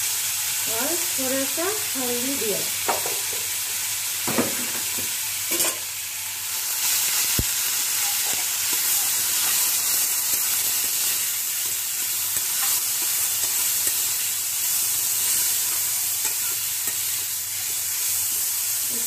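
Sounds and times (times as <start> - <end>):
carrots sizzling in a pan: 0.0 - 19.0
metal spatula scraping a pan: 5.5 - 5.9, 8.0 - 18.6.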